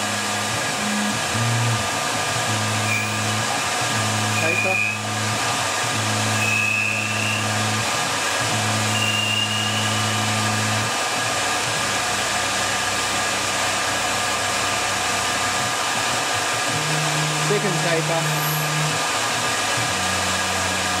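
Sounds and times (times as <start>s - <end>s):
lathe whirring hiss: 0.0s - 21.0s
faint thin whistles: 6.4s - 7.4s, 9.0s - 10.0s.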